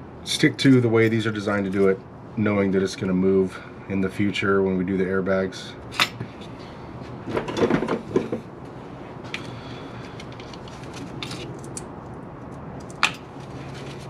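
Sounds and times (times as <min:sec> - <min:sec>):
rustling and light clatter: 0:06.0 - 0:14.0.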